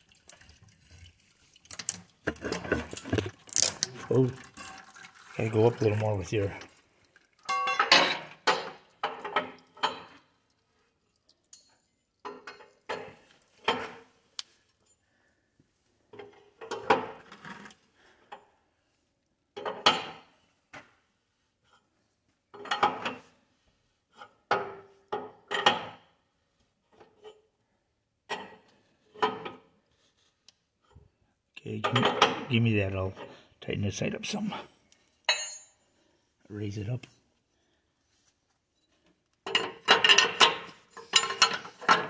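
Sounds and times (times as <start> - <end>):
metal clanking and scraping: 2.3 - 4.1, 39.5 - 42.0.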